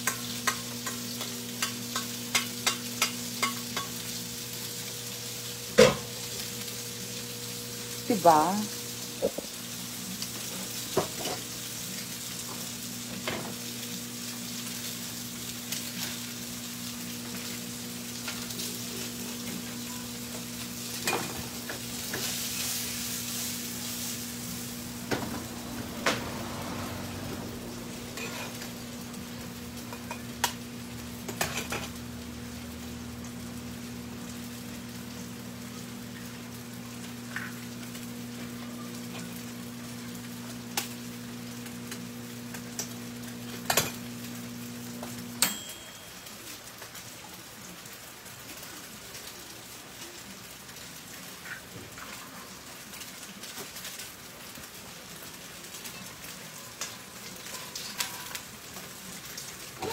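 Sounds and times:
utensils and bowls clicking: 0.0s - 4.0s
meat sizzling in a frying pan: 0.0s - 59.9s.

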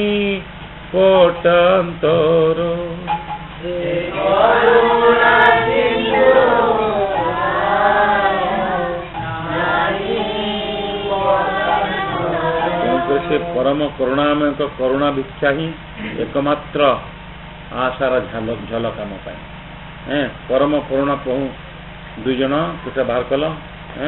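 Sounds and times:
single voice holding sung notes: 1.0s - 14.5s
group singing devotional song: 1.0s - 14.8s.

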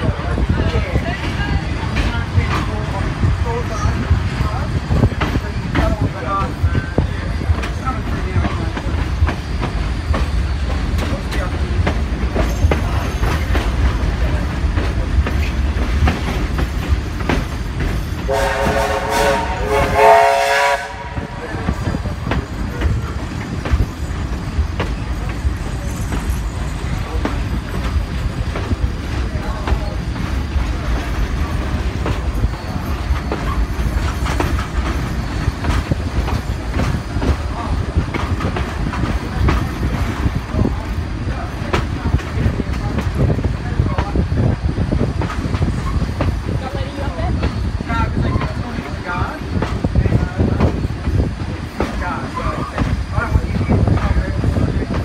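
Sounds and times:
train low rumble: 0.0s - 55.0s
train wheels clicking on rails: 0.0s - 55.0s
steam locomotive whistle: 18.3s - 21.3s.

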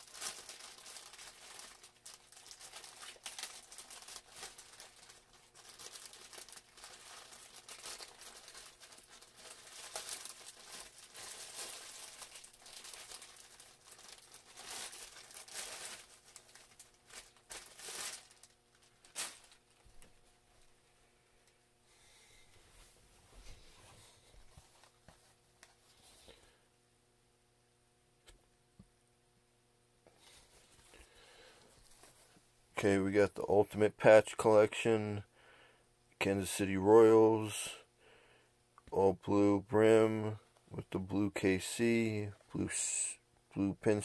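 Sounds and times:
plastic bag crinkling: 0.0s - 20.3s.

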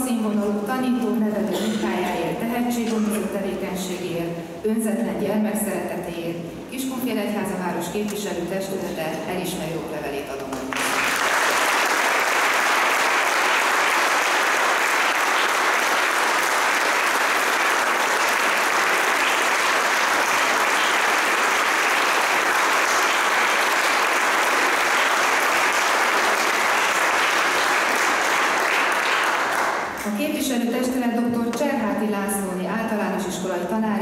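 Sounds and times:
audience applauding: 10.7s - 30.0s.

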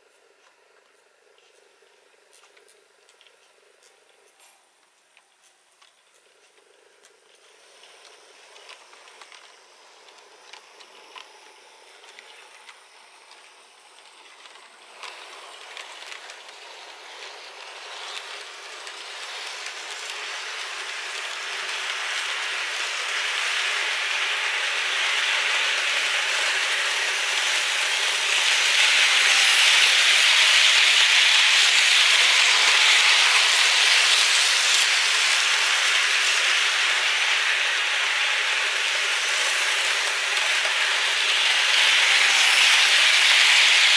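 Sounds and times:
model train rushing hiss: 6.3s - 43.9s.

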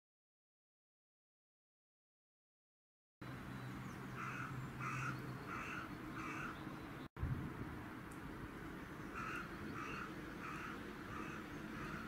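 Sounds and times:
crow cawing: 4.2s - 6.6s, 9.1s - 12.0s.

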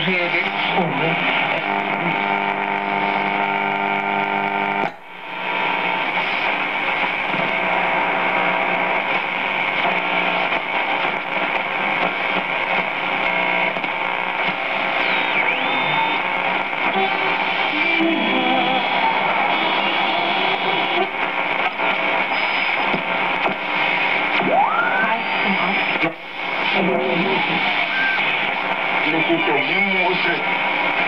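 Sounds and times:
radio static: 0.0s - 31.0s
radio tuning whistle: 13.6s - 31.0s.

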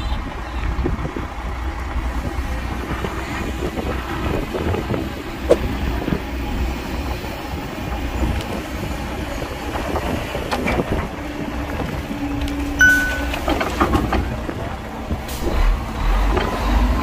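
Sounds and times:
heavy diesel machinery rumbling: 0.0s - 17.0s
sharp metallic clank: 12.8s - 13.6s.

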